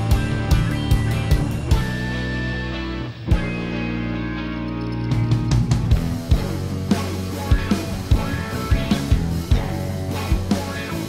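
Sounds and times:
rock music guitar chords: 0.0s - 11.0s.

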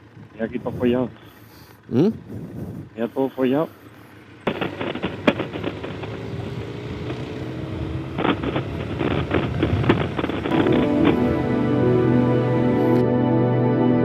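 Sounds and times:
motorcycle engine running: 0.0s - 13.0s
background music: 10.5s - 14.0s.

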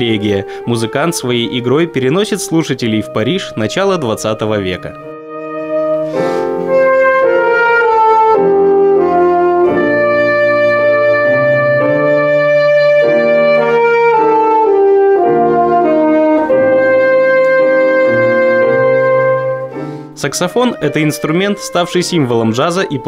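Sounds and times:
piano chords: 0.0s - 23.0s
alto saxophone melody: 4.9s - 23.0s.

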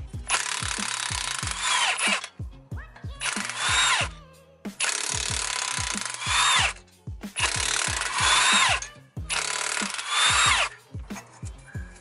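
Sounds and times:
background music with beat: 0.0s - 12.0s
impact wrench spinning bolts: 0.2s - 2.4s, 3.2s - 4.1s, 4.8s - 10.7s.

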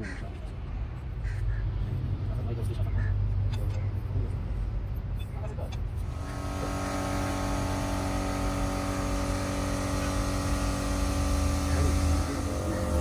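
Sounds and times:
machine hum with low rumble: 5.9s - 13.0s.

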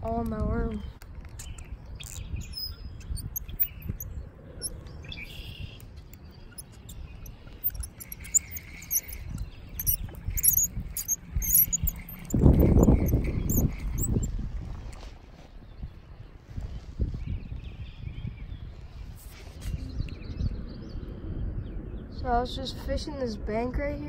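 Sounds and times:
birds chirping: 0.0s - 14.5s
rustling against microphone: 0.8s - 17.6s, 18.8s - 20.0s.

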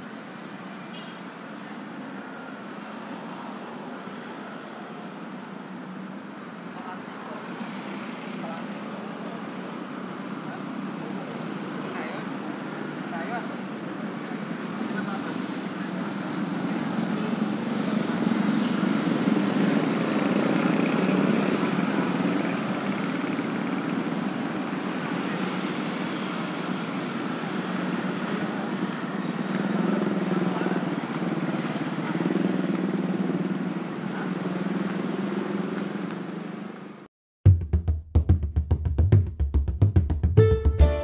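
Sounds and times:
steady traffic hum: 0.0s - 37.1s
motor scooters passing: 7.1s - 37.0s.

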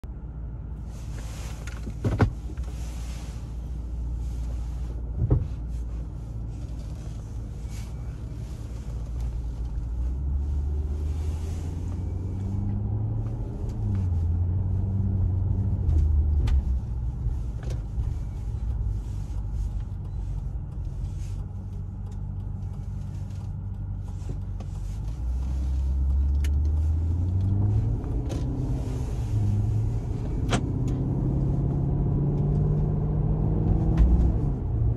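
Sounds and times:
car engine accelerating: 0.0s - 34.9s.

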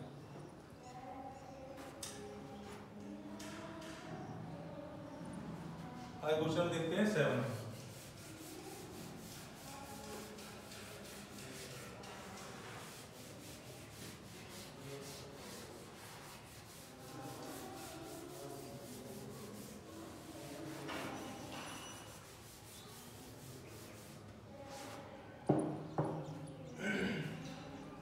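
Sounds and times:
eraser rubbing on chalkboard: 7.4s - 25.1s.

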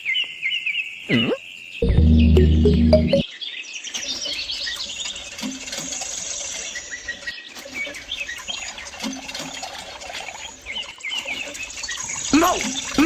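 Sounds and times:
small birds chirping: 0.0s - 9.3s, 10.2s - 13.0s.

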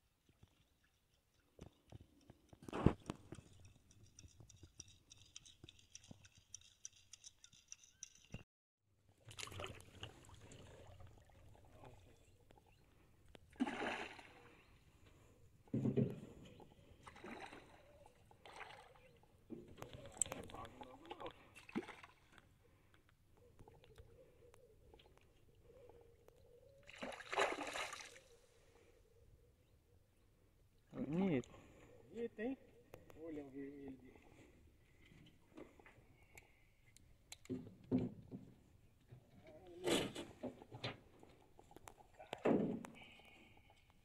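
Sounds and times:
water splashing and sloshing: 9.1s - 12.6s, 13.4s - 22.6s, 26.8s - 28.4s.

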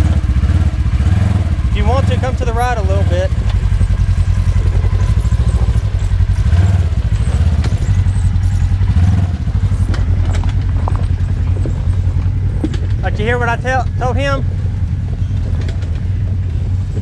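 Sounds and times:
off-road vehicle engine throbbing: 0.0s - 17.0s
rocks knocking under tyres: 8.9s - 13.2s.

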